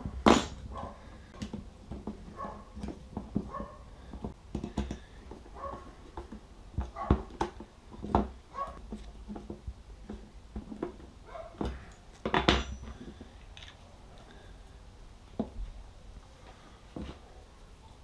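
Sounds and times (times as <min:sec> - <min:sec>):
tools clattering: 0:00.2 - 0:00.7, 0:11.6 - 0:13.8
tools and screws clicking on wood: 0:00.2 - 0:13.8.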